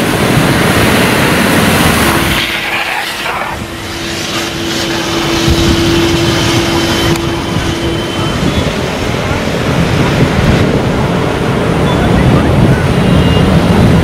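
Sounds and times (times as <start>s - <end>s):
steady humming drone: 0.0s - 14.0s
vehicle engine noise: 0.0s - 14.0s
water sloshing around wheels: 0.3s - 7.0s.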